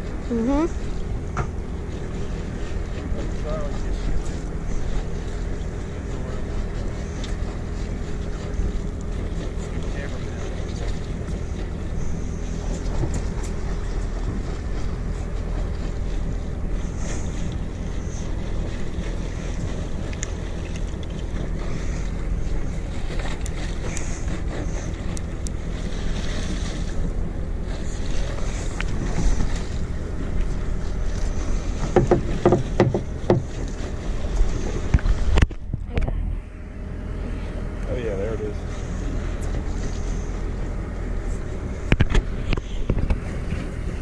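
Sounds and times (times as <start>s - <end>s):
boat engine idling: 0.0s - 44.0s
sharp knocks: 31.9s - 33.6s.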